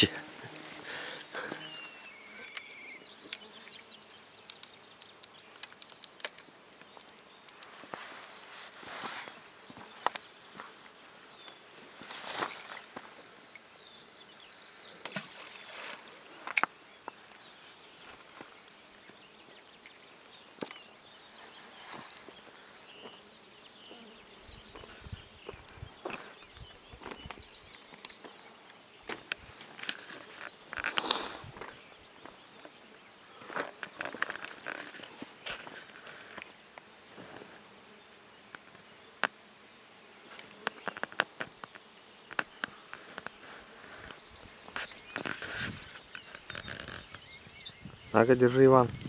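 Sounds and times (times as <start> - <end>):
flies buzzing: 0.0 - 49.0
sharp clicks: 4.5 - 6.4.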